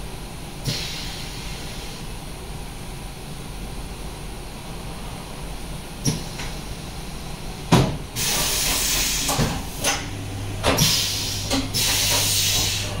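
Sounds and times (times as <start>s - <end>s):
machine clunks: 7.7s - 13.0s
machine hissing bursts: 8.2s - 10.0s, 10.6s - 13.0s
steady low hum: 9.2s - 13.0s.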